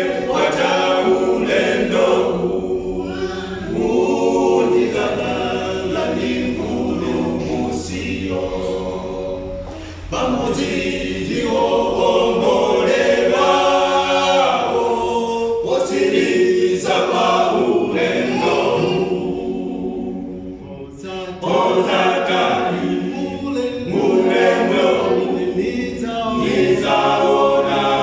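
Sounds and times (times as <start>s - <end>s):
male choir singing a hymn: 0.0s - 28.0s.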